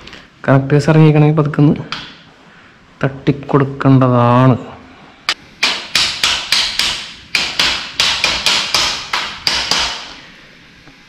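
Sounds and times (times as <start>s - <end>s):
hammer striking metal: 5.6s - 10.2s.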